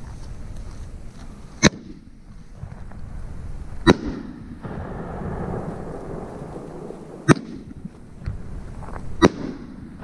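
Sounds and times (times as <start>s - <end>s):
firework launch bang: 3.8s - 8.5s
firework burst bang with echo: 3.9s - 7.8s.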